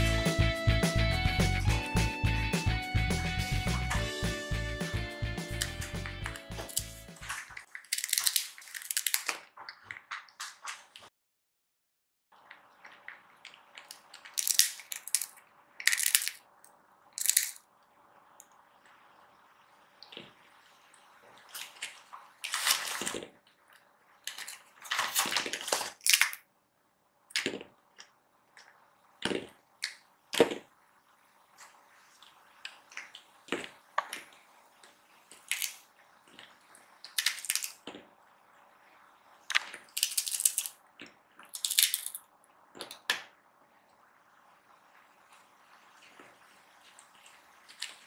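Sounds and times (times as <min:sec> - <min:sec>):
cats crunching dried fish: 0:06.6 - 0:10.4, 0:12.4 - 0:16.4, 0:21.5 - 0:26.4, 0:31.9 - 0:38.0, 0:39.5 - 0:42.2.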